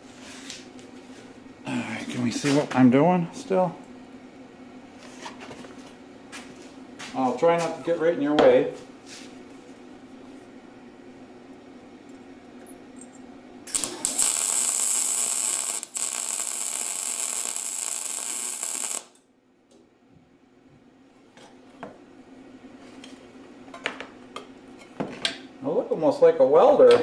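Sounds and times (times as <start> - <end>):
low steady hum: 0.0 - 27.0
welding arc crackling hiss: 13.6 - 19.2.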